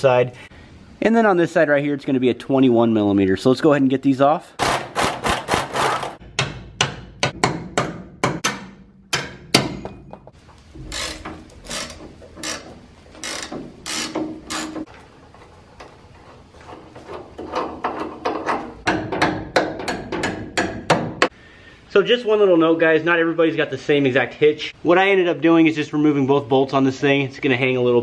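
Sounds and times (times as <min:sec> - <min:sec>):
impact wrench rattling: 0:10.7 - 0:20.5
hand ratchet clicking: 0:10.8 - 0:14.9.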